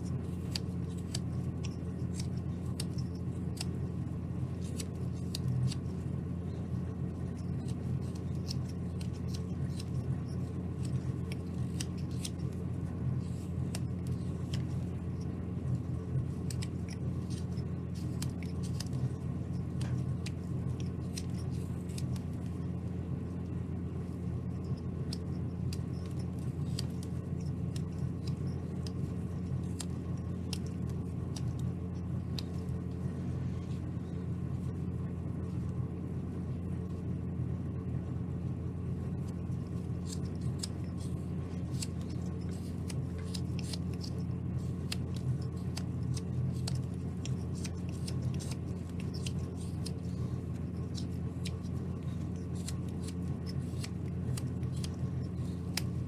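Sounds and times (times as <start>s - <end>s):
steady low hum: 0.0s - 56.0s
knife slicing wood: 39.9s - 56.0s.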